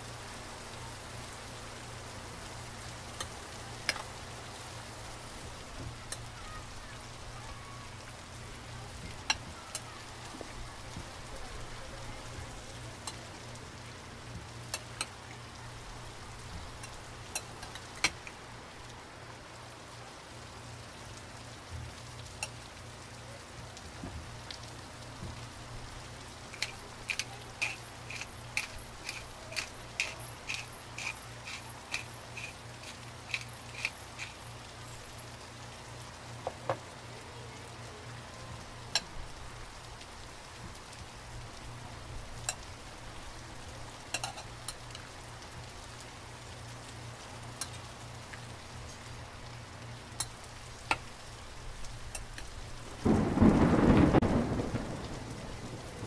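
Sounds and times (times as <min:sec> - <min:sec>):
rain pattering: 0:00.0 - 0:56.0
thunder rumble: 0:52.8 - 0:56.0.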